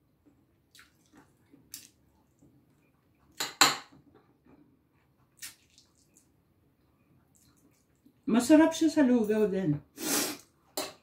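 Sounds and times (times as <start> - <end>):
cutlery clinking on a plate: 3.4 - 4.0, 10.8 - 11.0.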